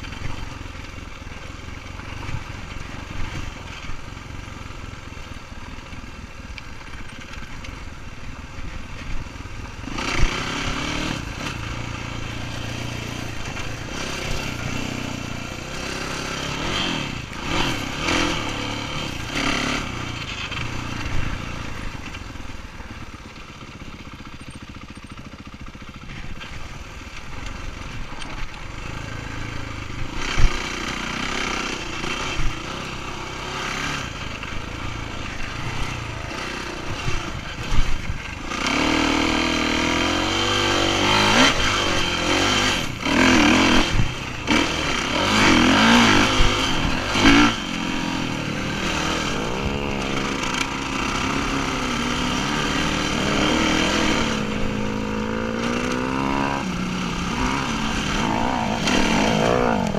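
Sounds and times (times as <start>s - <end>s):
dirt bike engine revving: 9.8s - 22.2s, 27.7s - 59.9s.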